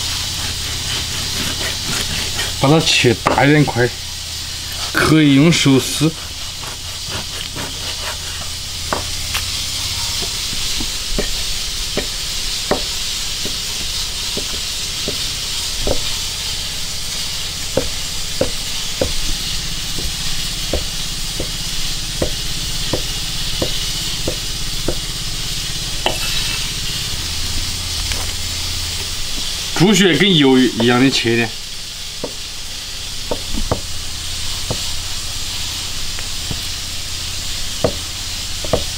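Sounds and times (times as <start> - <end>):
steady hiss: 0.0 - 38.9
cleaver chopping on wooden block: 6.6 - 9.2, 10.2 - 16.2, 17.7 - 21.6, 22.2 - 25.1, 32.2 - 32.4, 34.7 - 34.9, 37.8 - 38.9.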